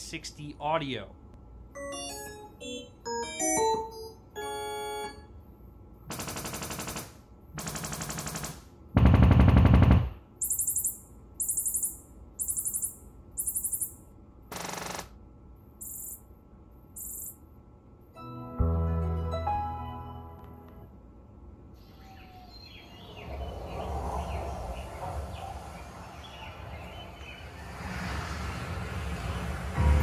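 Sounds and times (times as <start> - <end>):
calibration test signal bursts: 10.4 - 14.0, 15.8 - 16.2, 17.0 - 17.4.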